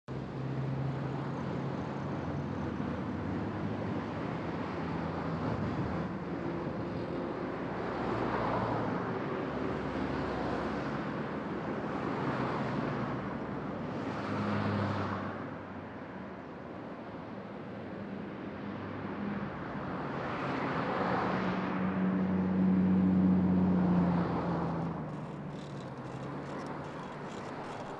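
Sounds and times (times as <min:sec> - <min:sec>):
cars driving on busy road: 0:00.1 - 0:27.9
cars passing close by: 0:18.6 - 0:27.9.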